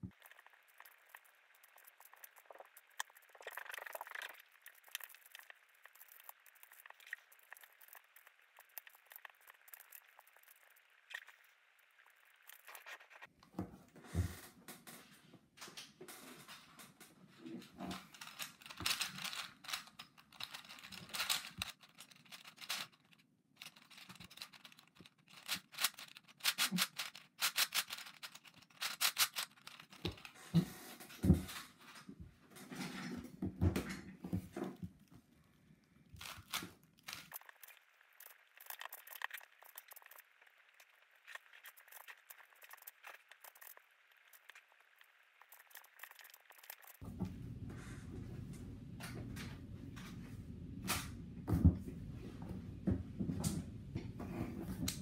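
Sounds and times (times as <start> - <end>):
puzzle cube layers clicking: 18.2 - 30.3, 36.2 - 47.0.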